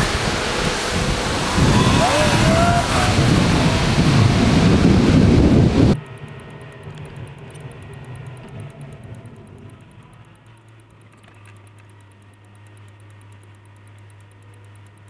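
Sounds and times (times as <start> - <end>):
wind buffeting microphone: 0.0 - 6.0
street traffic: 0.0 - 15.0
faint quick ticking: 5.9 - 15.0.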